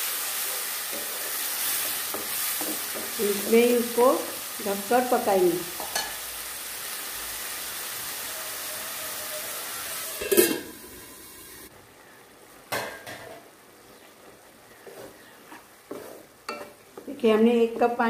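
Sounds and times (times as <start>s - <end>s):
pasta boiling and sizzling: 0.0s - 18.0s
metal lid clattering on pan: 10.2s - 10.7s.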